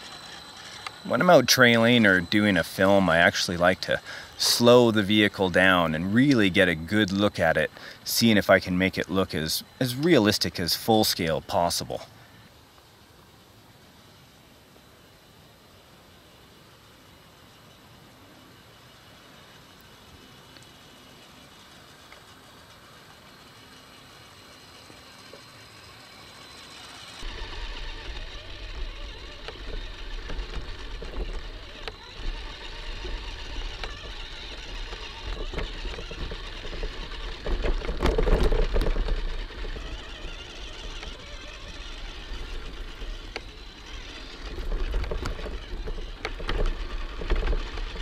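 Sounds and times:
electric motor and gear whine: 0.0 - 48.0
chassis clicks and knocks: 29.4 - 40.2, 42.4 - 48.0.

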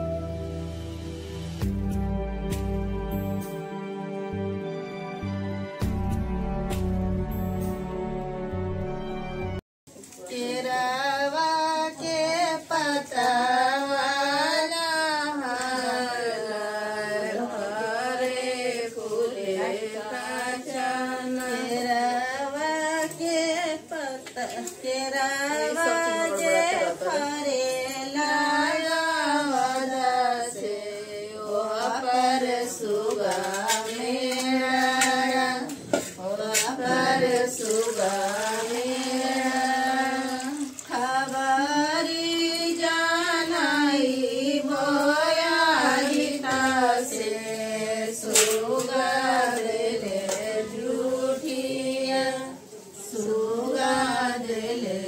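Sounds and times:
woman singing unaccompanied: 10.1 - 55.0.

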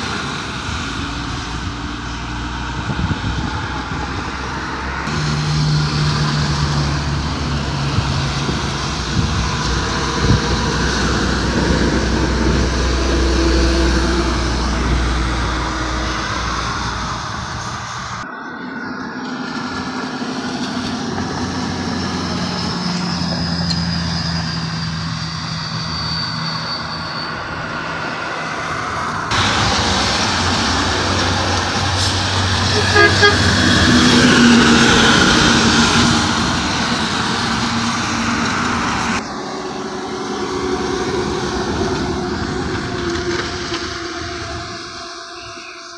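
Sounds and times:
car and truck engines passing: 0.0 - 45.9
tyre hiss on wet road: 29.3 - 33.7.

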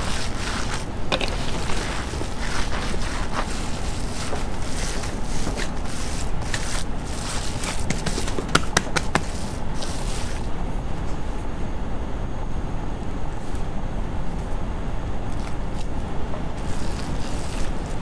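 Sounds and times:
steady low rumble: 0.0 - 8.3, 9.0 - 18.0
hands squishing minced meat: 0.0 - 10.4.

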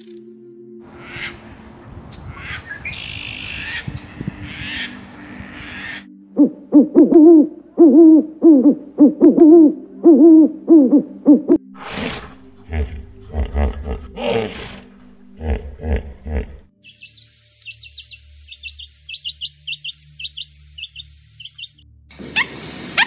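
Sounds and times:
terns calling: 2.2 - 7.5, 11.8 - 23.0
owl hooting: 4.5 - 23.0.

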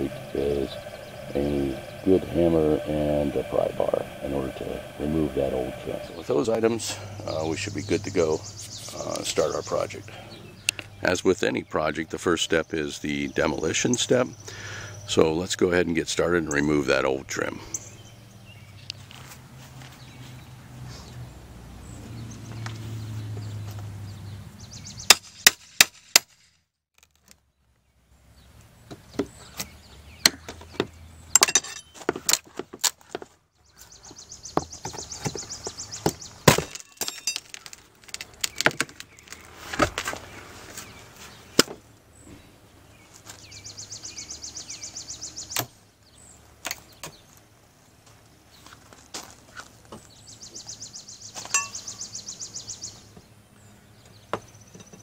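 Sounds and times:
high rhythmic buzzing: 0.0 - 10.2
hammer knocks and splitting wood: 36.0 - 37.7.

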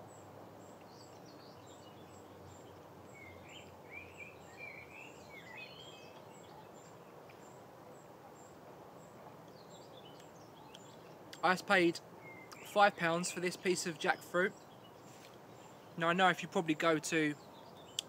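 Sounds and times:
soft steady hiss: 0.0 - 18.0
songbird warbling: 0.8 - 7.6, 12.2 - 12.8.

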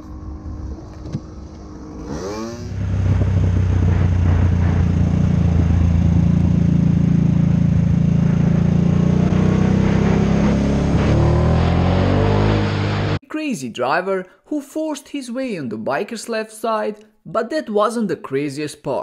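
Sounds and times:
motorcycle engine running: 0.0 - 13.2.

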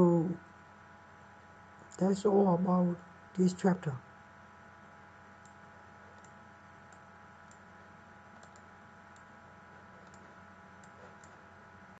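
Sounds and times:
low electrical hum: 0.0 - 12.0
faint computer mouse clicks: 6.2 - 7.6, 8.4 - 9.3, 10.0 - 11.4.

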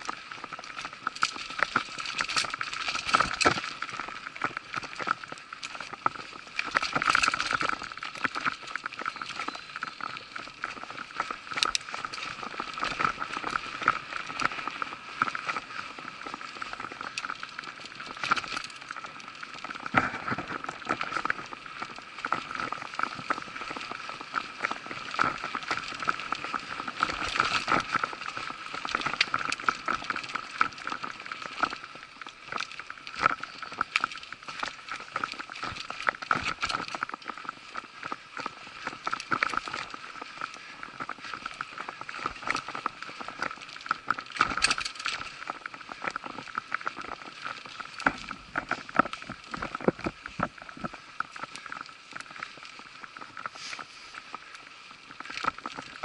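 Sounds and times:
bike tyres on dirt: 0.0 - 56.0
bike knocking and rattling: 44.3 - 47.0
bike rattling and knocking: 44.4 - 45.2.

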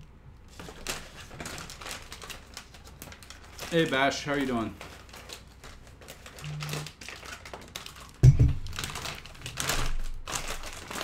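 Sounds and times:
heavy thump: 8.2 - 8.7.

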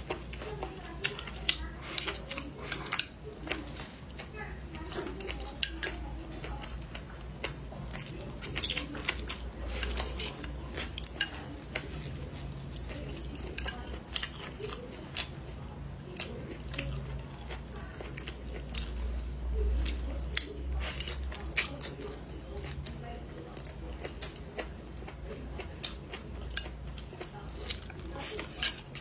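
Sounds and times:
chewing and mouth clicks: 0.0 - 29.0.

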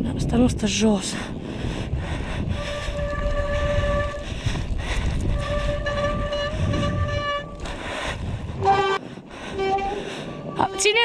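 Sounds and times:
wind and tyres on trail: 0.0 - 11.0.

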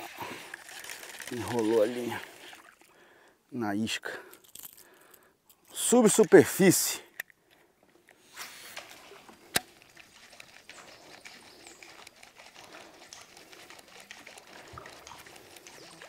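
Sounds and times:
outdoor ambience: 0.0 - 16.0
small ticks: 9.6 - 16.0.

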